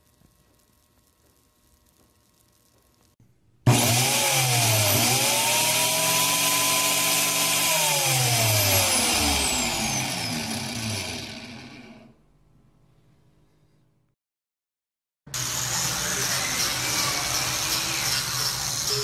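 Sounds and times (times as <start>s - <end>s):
angle grinder whining: 3.7s - 12.2s, 15.3s - 19.0s.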